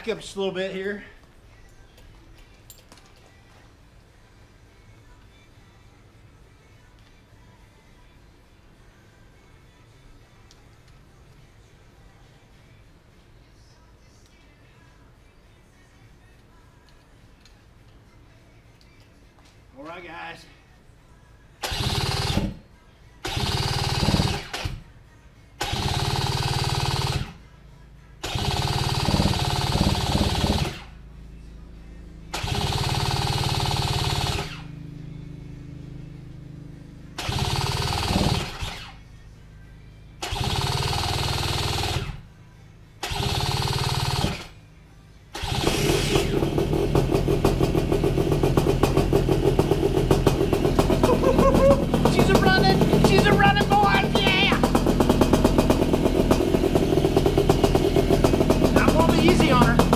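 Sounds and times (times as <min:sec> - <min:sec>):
paramotor engine starting: 0:21.6 - 0:22.6, 0:23.2 - 0:24.8, 0:25.6 - 0:27.4, 0:28.2 - 0:31.0, 0:32.3 - 0:34.8, 0:37.1 - 0:39.0, 0:40.2 - 0:42.2, 0:43.0 - 0:44.6, 0:45.3 - 0:59.9.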